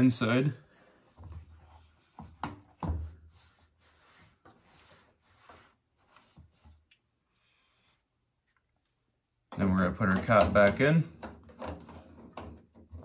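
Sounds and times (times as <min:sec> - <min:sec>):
cloth rag wiping: 0:00.0 - 0:06.9.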